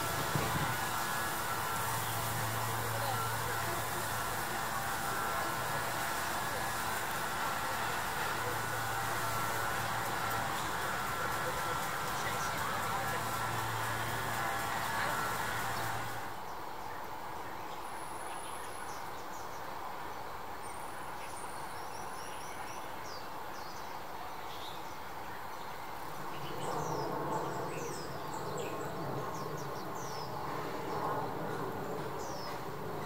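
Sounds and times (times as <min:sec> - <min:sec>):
steady hum: 0:00.0 - 0:16.4
outdoor hiss: 0:00.0 - 0:33.0
small birds chirping: 0:00.0 - 0:33.0.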